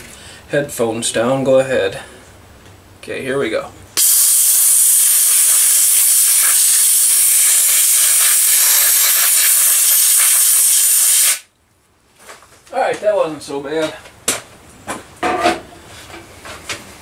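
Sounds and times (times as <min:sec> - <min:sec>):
compressed air blow gun hissing: 0:04.0 - 0:11.5.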